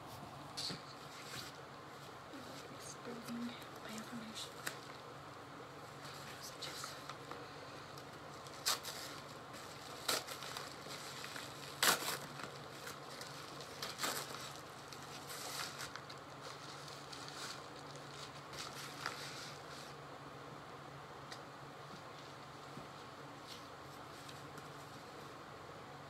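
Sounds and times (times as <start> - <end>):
packaging crinkling and rustling: 3.7 - 5.1, 6.0 - 20.0
sharp packaging crackles: 6.8 - 19.7.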